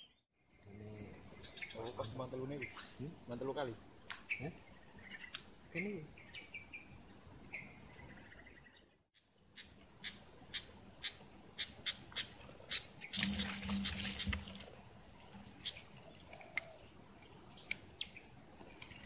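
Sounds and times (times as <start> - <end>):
insects trilling: 0.1 - 19.0
bird chirps: 9.5 - 14.6.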